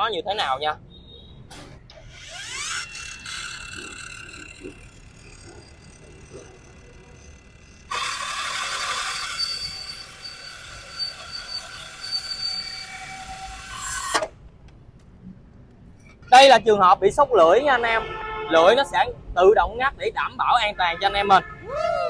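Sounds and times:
saw blade whining: 1.9s - 14.3s
saw grinding steel plate: 1.9s - 14.3s.

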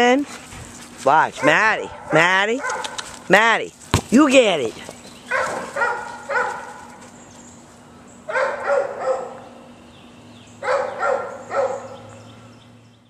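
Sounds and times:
dog barking: 1.4s - 3.0s, 5.3s - 7.0s, 8.3s - 9.4s, 10.6s - 12.1s.

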